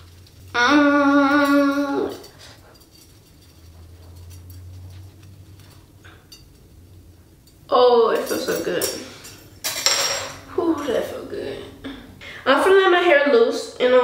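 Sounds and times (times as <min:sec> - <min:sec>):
wires rustling in hair: 0:00.0 - 0:09.6
girl humming: 0:00.5 - 0:02.4.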